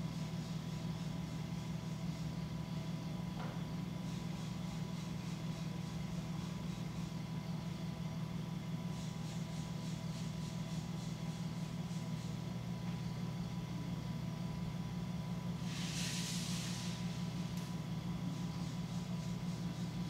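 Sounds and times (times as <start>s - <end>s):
potter's wheel motor humming: 0.0s - 20.0s
brief hiss: 15.6s - 17.2s.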